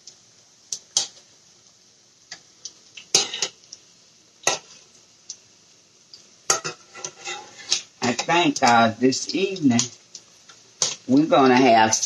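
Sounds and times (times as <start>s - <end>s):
oil sizzling: 0.0s - 12.0s
metal turner clinking on pot: 6.5s - 8.8s, 10.8s - 12.0s.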